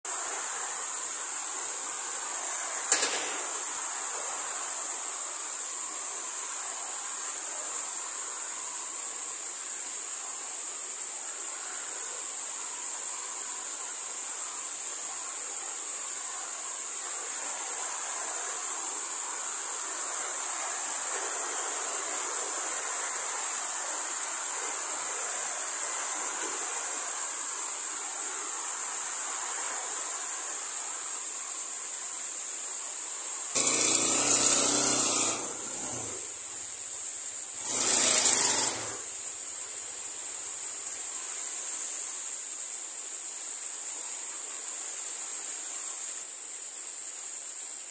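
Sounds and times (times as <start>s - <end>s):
insects chirping: 0.0s - 47.9s
rough noise bursts: 0.1s - 10.6s, 16.2s - 39.6s
rain falling: 0.1s - 47.9s.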